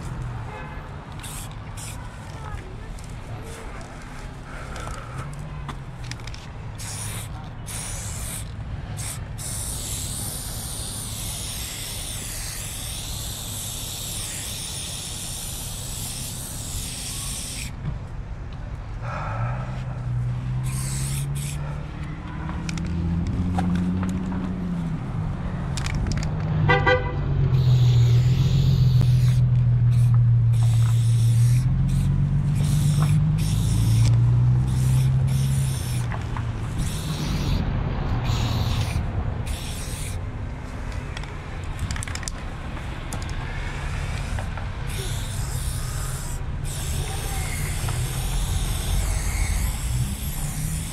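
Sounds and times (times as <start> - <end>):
spray-paint can hissing: 1.1 - 3.6, 6.1 - 17.8, 20.6 - 21.7, 27.5 - 40.2, 43.6 - 50.9
vehicle engine running: 19.0 - 39.6.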